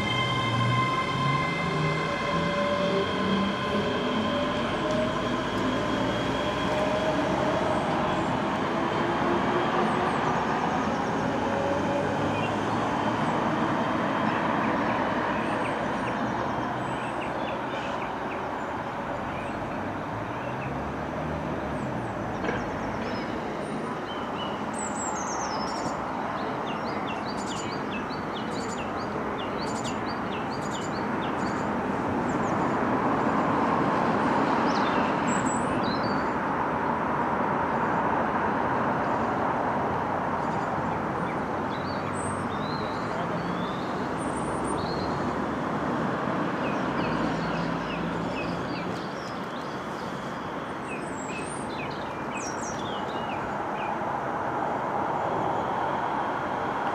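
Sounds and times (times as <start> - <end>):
rail rumble: 0.0 - 16.6.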